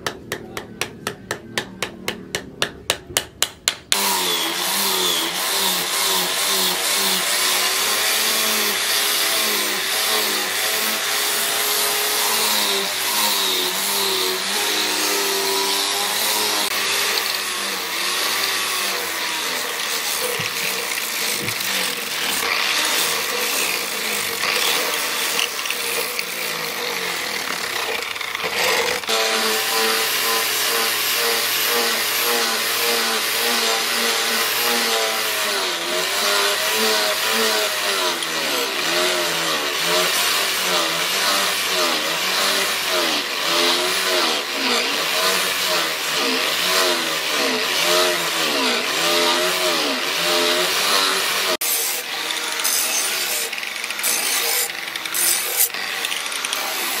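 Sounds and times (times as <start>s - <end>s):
grinder grinding steel blade: 0.1s - 57.0s
angle grinder running: 3.9s - 57.0s.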